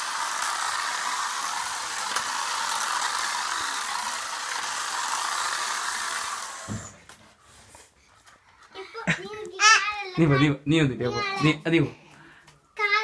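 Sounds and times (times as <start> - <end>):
toy car motor whirring: 0.0 - 7.2.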